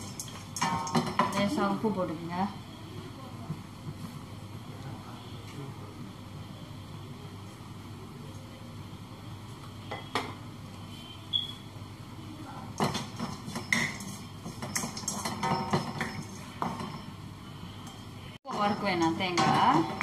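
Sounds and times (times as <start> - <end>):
spatula scraping and knocking wok: 0.0 - 1.6, 12.8 - 17.1, 18.5 - 20.0.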